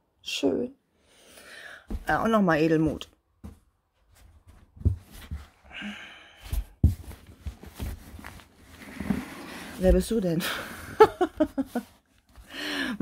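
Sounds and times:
person sighing: 5.7s - 6.6s, 12.5s - 13.0s
yarn rustling in cardboard box: 6.6s - 10.4s.

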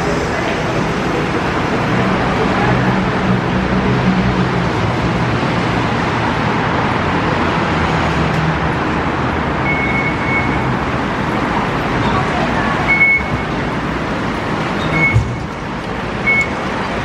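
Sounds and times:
city road traffic: 0.0s - 17.0s
short electronic beep: 9.7s - 10.7s, 12.9s - 13.6s, 14.8s - 15.4s.

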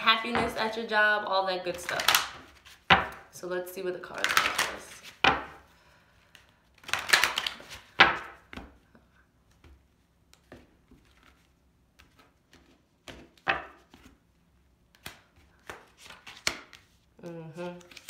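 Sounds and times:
cards being shuffled: 1.7s - 3.3s, 4.0s - 5.6s, 6.2s - 8.8s, 9.5s - 18.0s.

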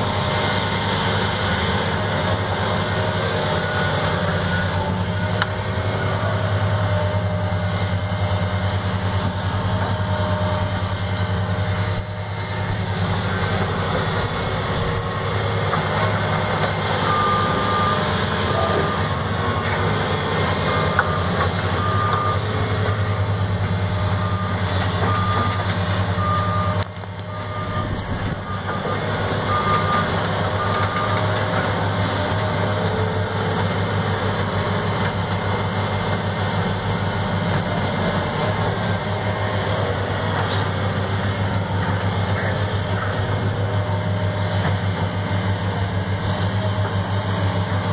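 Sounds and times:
excavator diesel engine running: 0.0s - 47.9s
backup alarm beeping: 26.2s - 31.2s.

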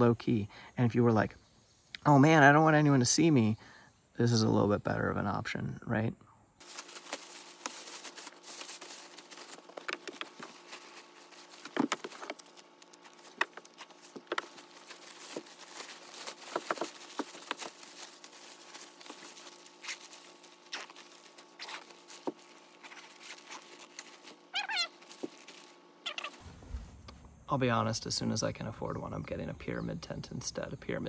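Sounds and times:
bivy sack rustling and crinkling: 6.6s - 27.2s
scrapes: 25.0s - 27.5s.

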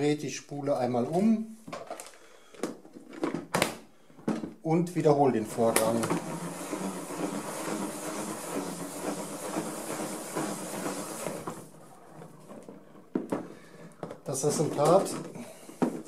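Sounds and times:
salad spinner whirring: 5.5s - 12.1s.

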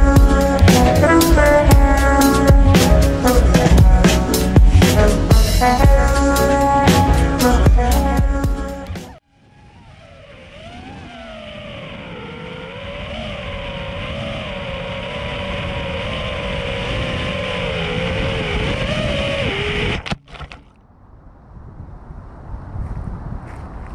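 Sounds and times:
rush of air noise: 0.0s - 7.7s, 9.3s - 20.0s
drone motors whining: 0.0s - 20.2s.

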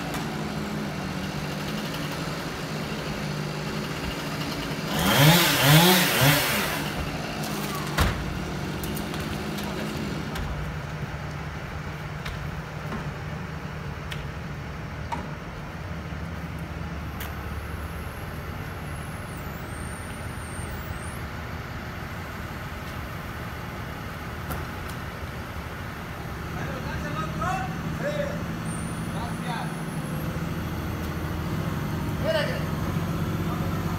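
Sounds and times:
large engine idling: 6.8s - 33.9s.

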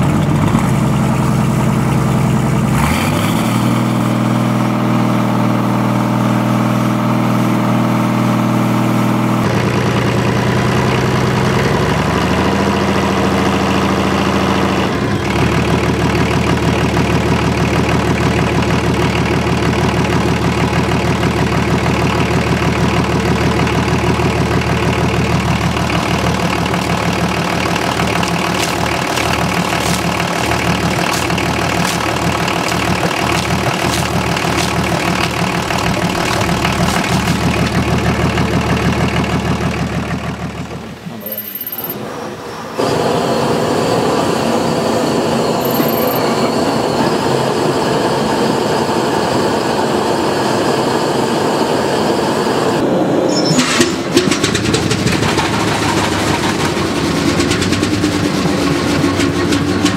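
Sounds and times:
diesel engines running: 0.0s - 59.9s
water spilling from hose: 25.3s - 38.4s.

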